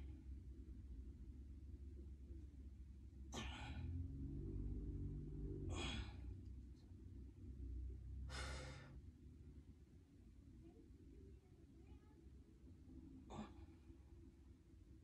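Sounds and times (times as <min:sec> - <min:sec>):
person breathing hard: 0:05.7 - 0:06.4, 0:08.2 - 0:09.0.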